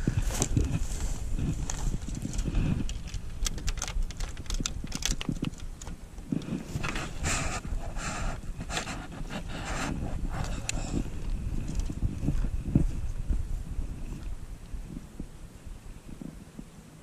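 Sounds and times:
crackling clicks of dry grass: 0:00.0 - 0:13.3
fabric rustling against microphone: 0:00.0 - 0:14.3.

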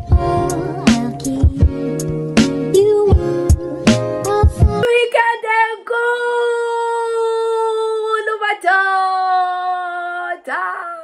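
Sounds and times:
intro music with drum hits: 0:00.0 - 0:04.8
woman singing unaccompanied: 0:00.0 - 0:11.0.

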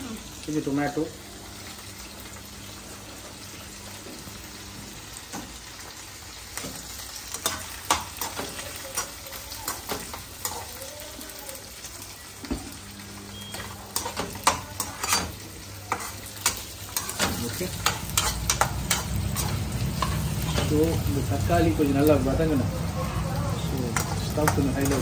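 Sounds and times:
vegetables sizzling in frying pan: 0:00.0 - 0:25.0
spoon scraping pan: 0:13.5 - 0:20.8.

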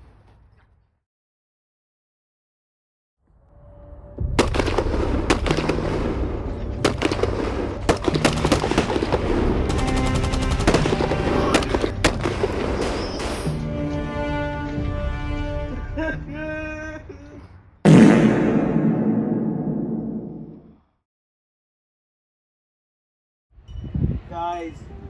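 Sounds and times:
dramatic music: 0:03.7 - 0:16.4
machine-gun fire: 0:06.8 - 0:12.6, 0:17.9 - 0:20.5
explosion booms: 0:17.9 - 0:20.7.

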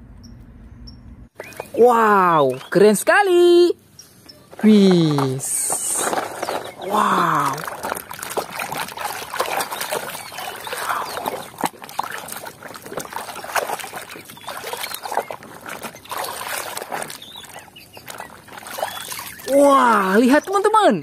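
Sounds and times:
water sloshing in a tub: 0:04.5 - 0:21.0.

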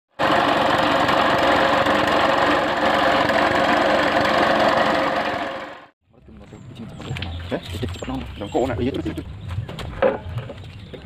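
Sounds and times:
small engine running: 0:00.1 - 0:05.9.

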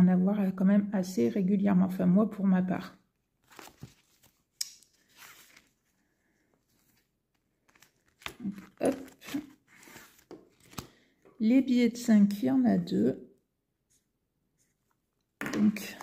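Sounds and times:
plastic and paper rustling: 0:03.4 - 0:11.0.

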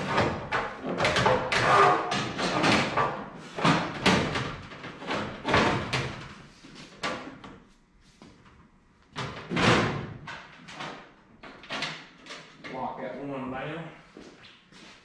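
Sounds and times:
metal panels clunking and rattling: 0:00.0 - 0:06.4.

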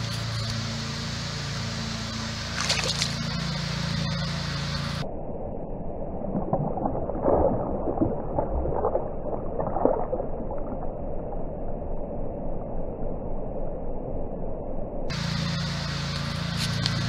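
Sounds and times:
slowed water gurgling and sloshing: 0:02.0 - 0:15.2.

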